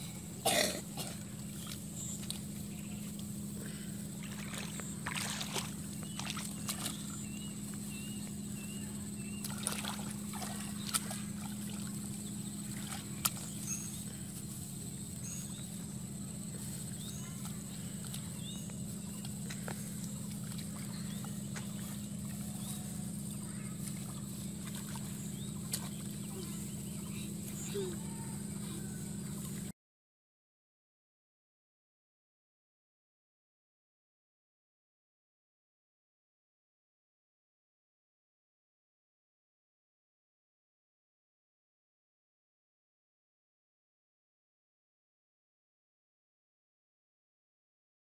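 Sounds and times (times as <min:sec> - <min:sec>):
steady low hum: 0:00.0 - 0:29.7
rice seedlings rustling in water: 0:04.3 - 0:07.0
bird chirps: 0:05.9 - 0:14.3, 0:15.0 - 0:29.5.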